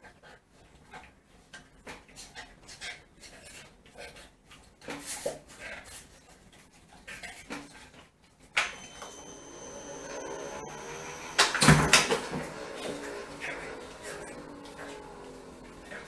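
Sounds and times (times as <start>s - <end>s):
ball launcher clunk: 8.6s - 16.0s
motor humming with high whine: 8.6s - 16.0s.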